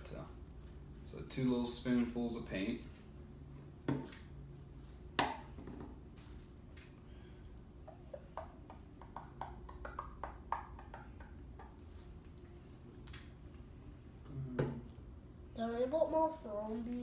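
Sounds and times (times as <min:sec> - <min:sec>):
stick tapping plastic bowl: 0:07.9 - 0:11.8.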